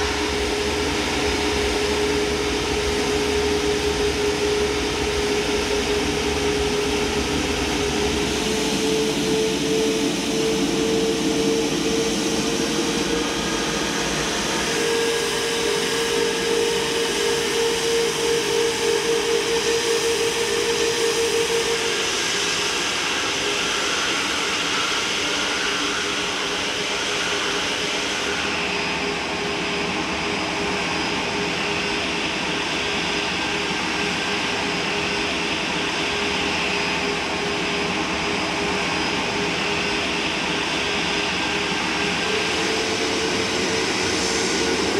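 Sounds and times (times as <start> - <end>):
pulsing hum: 0.0 - 22.2
airliner engines rushing: 0.0 - 44.9.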